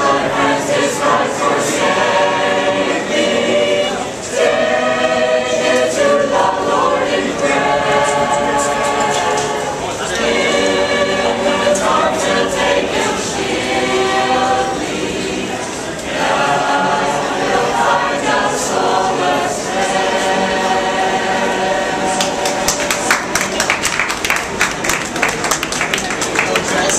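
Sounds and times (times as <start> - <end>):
choir singing a hymn: 0.0 - 23.3
people clapping: 22.0 - 26.9.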